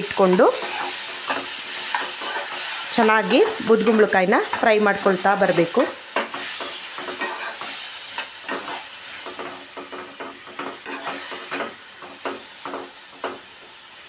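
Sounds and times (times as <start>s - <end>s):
gourd sizzling in ghee: 0.0s - 14.0s
spoon stirring and scraping: 0.2s - 4.8s, 6.2s - 12.8s.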